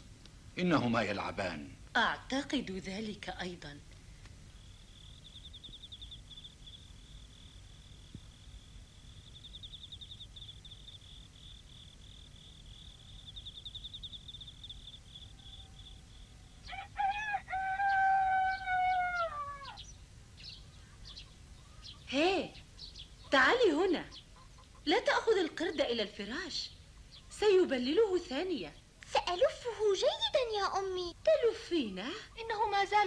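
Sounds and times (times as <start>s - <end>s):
night insects trilling: 4.5s - 26.4s
rooster crowing: 15.0s - 19.9s.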